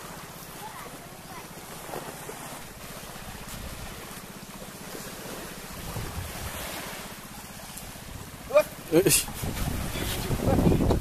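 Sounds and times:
surf washing on sand: 0.0s - 11.0s
wind rumbling on microphone: 5.7s - 6.8s, 9.0s - 11.0s.

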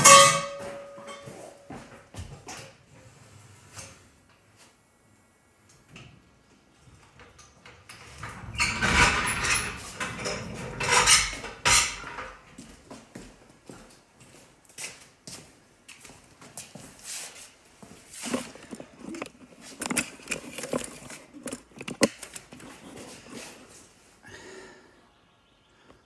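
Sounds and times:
knocks and rattling: 8.0s - 12.4s, 18.2s - 23.1s
metal clinks and clanks of jack: 18.2s - 22.6s.

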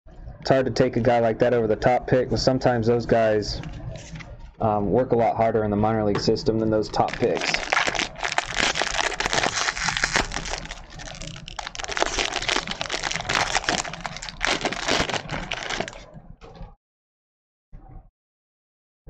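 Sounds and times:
foil wrapper crinkling: 6.9s - 16.1s.

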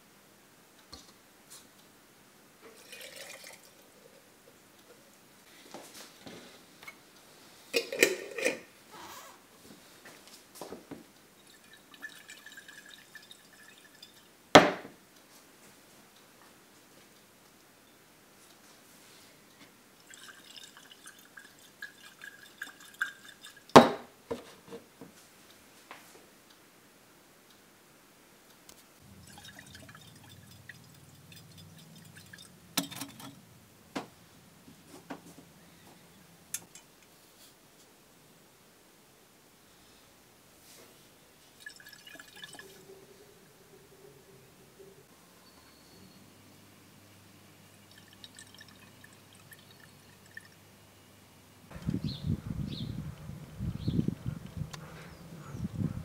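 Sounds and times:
cup clinking against glass jar: 7.8s - 8.7s
liquid swishing in glass jar: 11.4s - 14.3s, 20.0s - 23.7s, 29.1s - 33.4s, 41.6s - 42.9s, 47.9s - 50.6s.

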